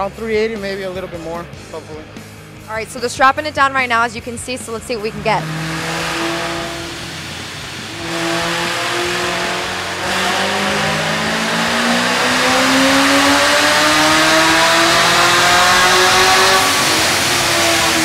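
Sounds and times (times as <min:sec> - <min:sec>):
car engine at full throttle: 0:03.7 - 0:18.0.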